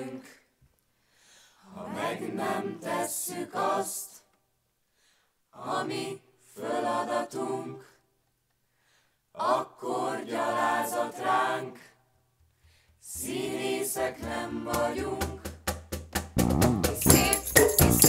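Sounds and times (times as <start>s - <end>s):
group singing in unison: 0.0s - 0.5s, 1.6s - 4.3s, 5.5s - 8.1s, 9.3s - 12.1s, 13.0s - 15.8s, 16.7s - 18.0s.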